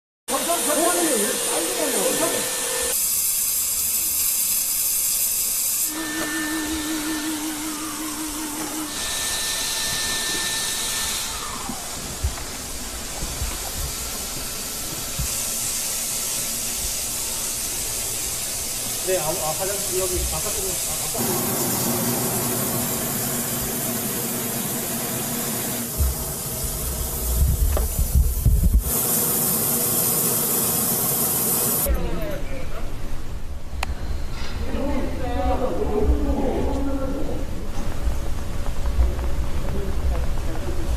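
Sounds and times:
disinfectant sprayer hissing: 0.3 - 31.9
low wavering hum: 5.9 - 9.1.

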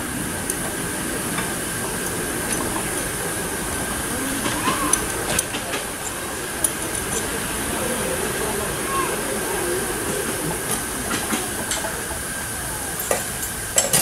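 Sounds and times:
steam locomotive hiss: 0.0 - 14.0
metallic clicks and clanks: 0.4 - 7.4.

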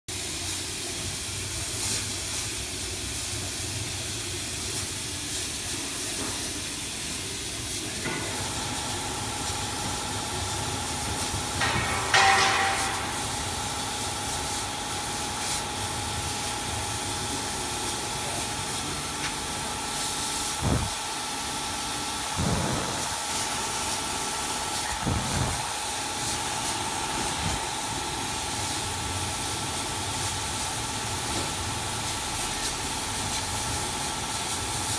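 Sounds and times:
hiss of moving air: 0.2 - 34.9
brief air rush: 20.4 - 21.2, 22.2 - 27.6
low thumps: 20.6 - 21.0.

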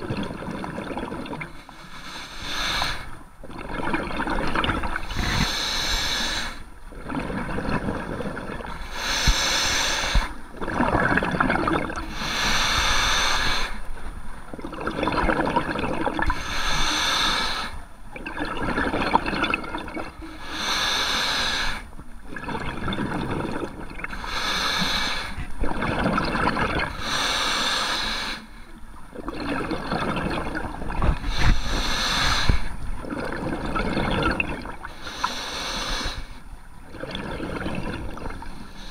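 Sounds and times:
exhaled bubbles rushing: 0.0 - 1.6, 3.4 - 5.5, 6.9 - 8.8, 10.6 - 12.1, 14.5 - 16.4, 18.2 - 20.1, 22.3 - 24.2, 25.6 - 27.0, 29.1 - 31.8, 33.0 - 34.9, 36.8 - 38.6
regulator air hiss: 1.8 - 3.2, 5.1 - 6.7, 8.9 - 10.4, 12.1 - 13.8, 16.4 - 17.8, 20.4 - 21.9, 24.2 - 25.4, 27.0 - 28.6, 31.3 - 32.8, 35.0 - 36.4.

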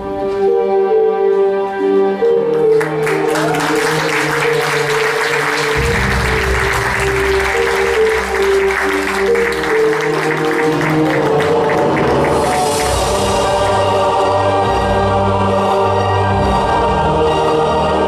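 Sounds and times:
backing music with held notes: 0.0 - 18.0
audience applause: 2.7 - 13.8.

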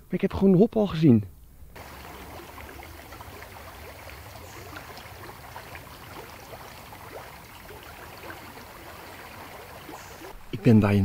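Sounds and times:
stream babbling and trickling: 1.7 - 10.5
low water rumble: 1.8 - 10.4
small water splashes: 1.8 - 10.4.

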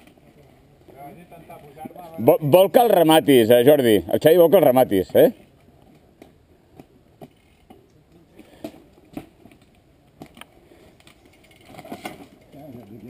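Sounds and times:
mountain bike clicks and knocks: 5.4 - 13.0.

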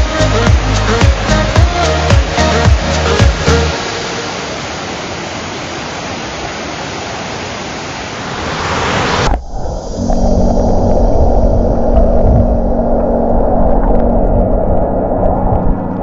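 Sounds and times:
background music: 0.0 - 4.0
waterfall rushing: 0.0 - 9.4.

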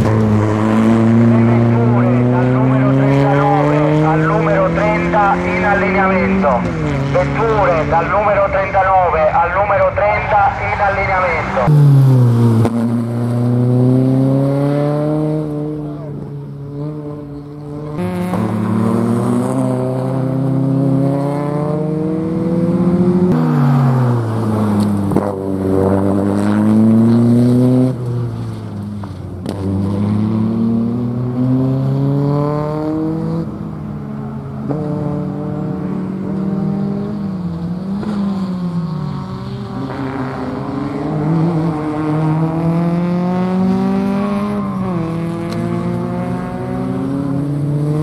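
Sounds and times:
car engine revving hard: 0.0 - 8.4, 11.3 - 28.0, 29.4 - 33.6, 34.6 - 48.0.

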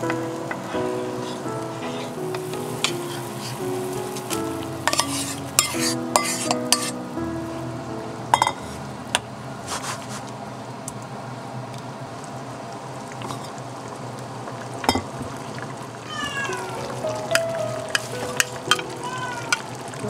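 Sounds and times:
wooden spatula stirring: 1.2 - 7.0, 16.9 - 19.9
sauce simmering in a pan: 12.1 - 20.0.

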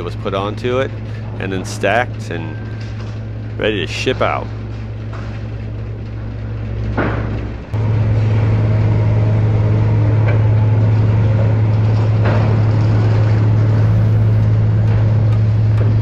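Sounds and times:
forklift engine running: 0.0 - 16.0.

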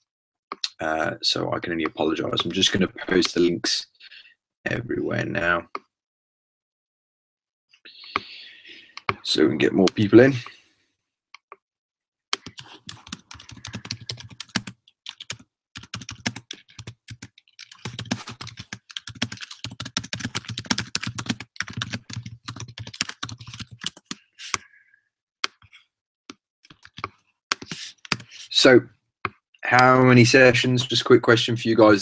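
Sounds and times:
typing on computer keyboard: 12.4 - 24.2, 26.7 - 28.3.

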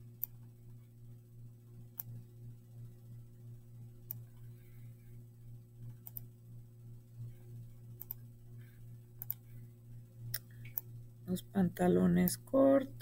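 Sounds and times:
low steady hum: 0.0 - 13.0
computer mouse clicks: 0.2 - 0.4, 1.9 - 2.2, 4.0 - 4.5, 5.8 - 6.3, 8.0 - 8.3, 9.2 - 9.6, 10.3 - 10.9.

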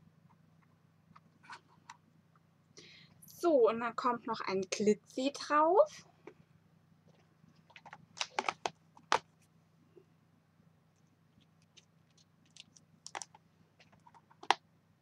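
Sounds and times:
plastic case clicking and rattling: 7.7 - 9.3, 11.7 - 14.6.

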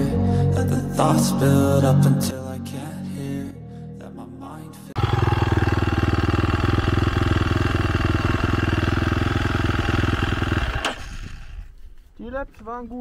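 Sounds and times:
motorbike engine idling: 5.0 - 11.8.

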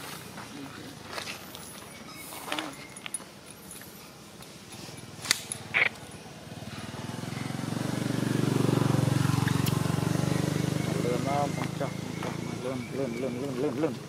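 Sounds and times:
vehicle engine approaching: 4.8 - 14.0.

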